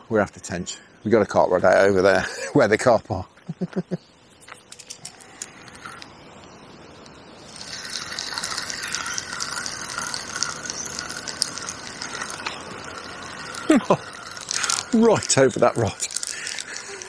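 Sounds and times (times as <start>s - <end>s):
fishing reel whirring and clicking: 4.5s - 6.2s, 7.4s - 17.0s.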